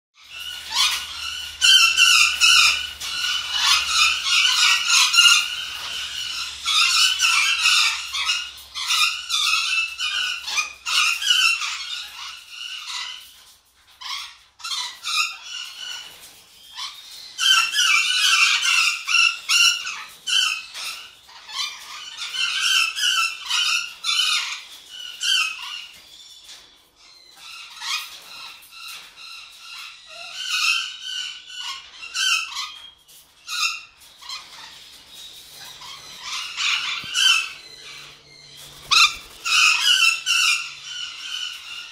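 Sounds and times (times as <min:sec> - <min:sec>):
parrot squeaky chattering: 0:00.2 - 0:13.2, 0:35.5 - 0:41.9.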